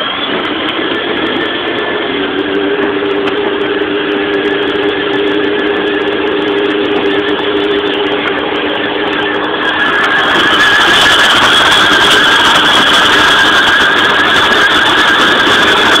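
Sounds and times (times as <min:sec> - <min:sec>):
electric motors whining: 0:00.0 - 0:16.0
wheels rolling on road: 0:00.0 - 0:16.0.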